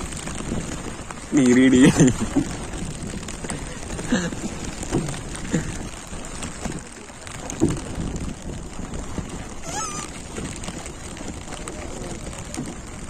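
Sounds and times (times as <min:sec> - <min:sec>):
rain falling on boat and sea: 0:00.0 - 0:13.0.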